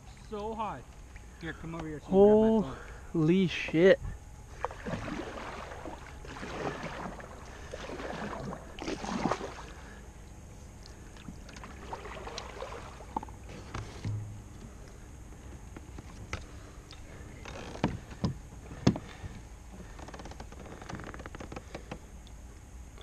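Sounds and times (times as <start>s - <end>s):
paddle splashing in water: 4.5s - 10.0s, 11.2s - 14.2s.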